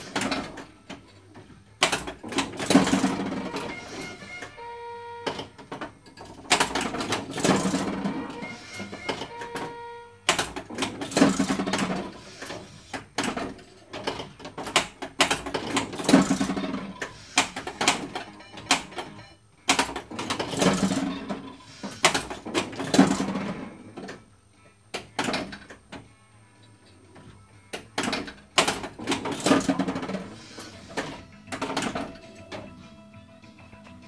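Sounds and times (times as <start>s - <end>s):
pinball switches clacking: 0.0s - 4.6s, 5.3s - 9.7s, 10.3s - 12.2s, 13.0s - 24.2s, 27.8s - 30.3s
pinball rolling rumble: 1.8s - 4.5s, 5.4s - 9.3s, 10.3s - 19.2s, 19.8s - 24.1s, 28.6s - 32.7s.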